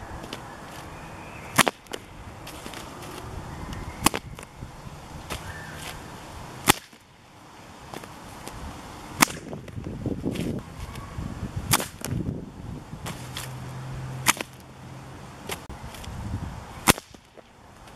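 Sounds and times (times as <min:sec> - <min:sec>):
whip cracking: 0:01.5 - 0:02.0, 0:04.0 - 0:04.5, 0:06.6 - 0:07.0, 0:09.2 - 0:09.6, 0:11.7 - 0:12.2, 0:14.2 - 0:14.6, 0:16.8 - 0:17.4.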